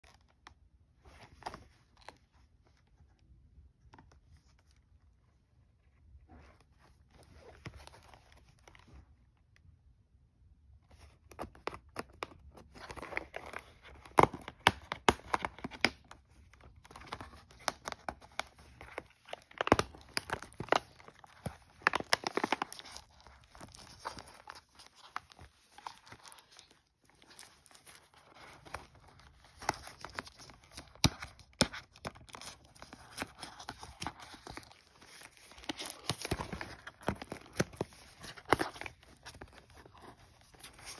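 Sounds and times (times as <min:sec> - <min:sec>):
plastic wrap crinkling and tearing: 0:11.3 - 0:40.9.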